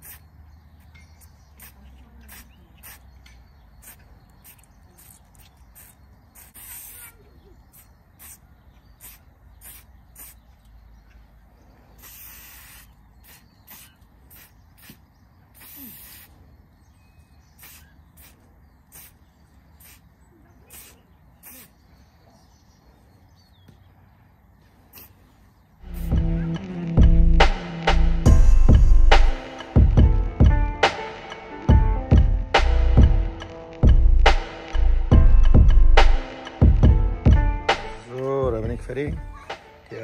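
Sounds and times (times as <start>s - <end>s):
spray paint can hissing: 0.0s - 0.3s, 1.2s - 3.2s, 3.8s - 10.5s, 12.0s - 16.4s, 17.6s - 20.1s, 20.7s - 21.8s, 25.8s - 26.2s.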